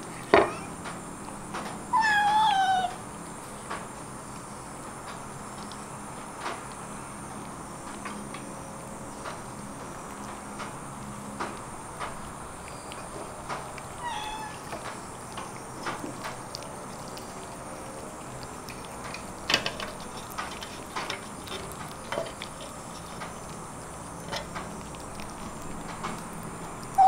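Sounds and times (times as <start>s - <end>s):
kittens chewing and licking: 0.0s - 27.0s
kitten mewing: 0.4s - 0.8s, 1.9s - 3.0s, 14.0s - 14.7s.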